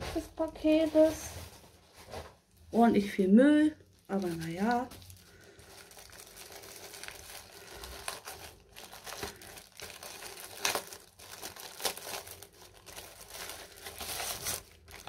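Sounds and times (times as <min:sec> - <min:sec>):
packaging crinkling: 0:03.9 - 0:15.0.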